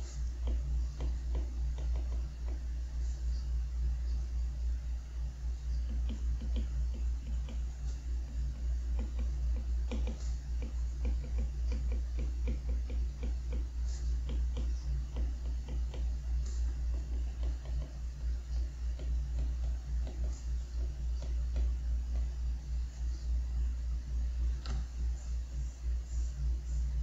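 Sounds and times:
steady low hum: 0:00.0 - 0:27.0
stylus tapping on glass screen: 0:00.2 - 0:02.7, 0:05.8 - 0:18.0, 0:18.6 - 0:22.4.

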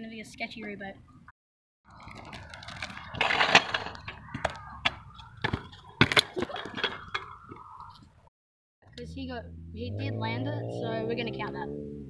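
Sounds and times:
scooter wheels rolling on asphalt: 0:01.9 - 0:08.1.

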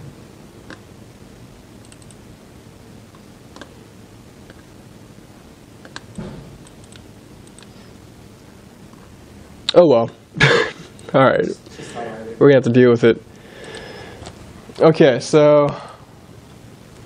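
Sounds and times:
low room hum: 0:00.0 - 0:17.0
laptop keyboard and mouse clicks: 0:01.8 - 0:02.2, 0:05.8 - 0:07.7.

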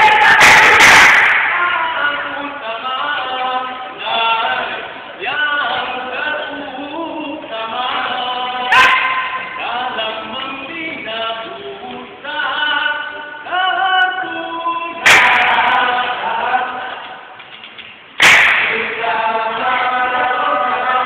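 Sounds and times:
loud sharp bursts: 0:00.0 - 0:01.9, 0:15.0 - 0:16.1, 0:18.2 - 0:19.1
group chanting in unison: 0:08.6 - 0:09.8, 0:15.0 - 0:17.1, 0:18.2 - 0:21.0.

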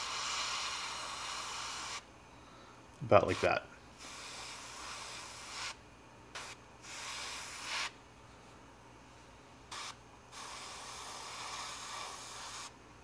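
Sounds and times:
airbrush spraying hiss: 0:00.0 - 0:02.0, 0:03.2 - 0:08.0, 0:09.7 - 0:12.8.

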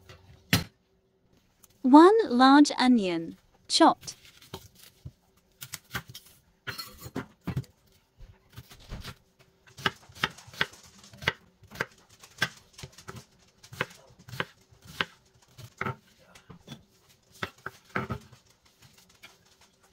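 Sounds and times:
knife cutting onion on wooden board: 0:08.5 - 0:12.5, 0:13.1 - 0:16.1.

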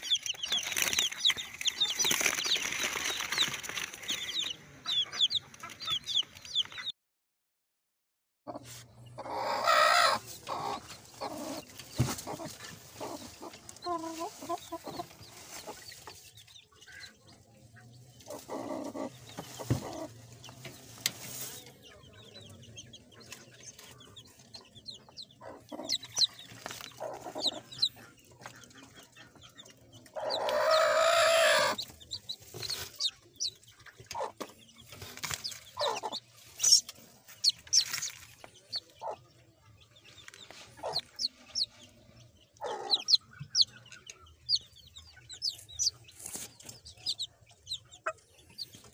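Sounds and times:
chicks cheeping: 0:00.0 - 0:06.9, 0:08.5 - 0:48.9
hen clucking: 0:00.0 - 0:06.9, 0:08.5 - 0:48.9.

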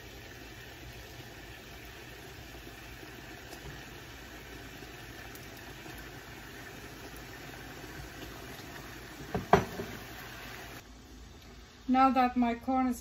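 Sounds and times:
sauce simmering hiss: 0:00.0 - 0:12.5
clatter of loud knocks: 0:09.3 - 0:10.0.

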